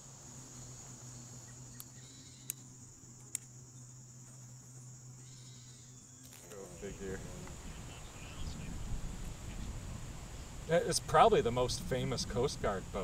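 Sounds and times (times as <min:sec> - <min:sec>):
insect trill: 0:00.0 - 0:13.0
sharp clicks: 0:01.8 - 0:02.6.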